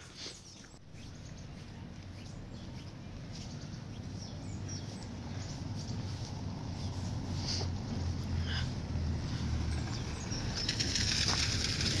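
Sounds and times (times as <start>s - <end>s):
faint bird chirps: 0.2s - 6.1s
steady low rumble: 0.8s - 12.0s.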